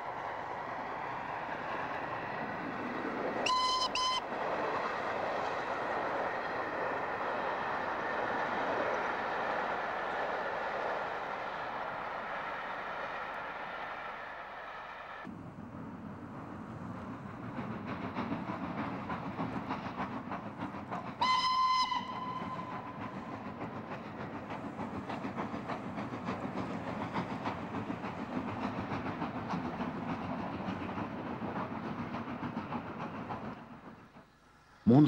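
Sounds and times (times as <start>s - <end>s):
steam locomotive rumbling: 0.0s - 35.0s
steam whistle blast: 3.4s - 4.2s, 21.2s - 22.8s.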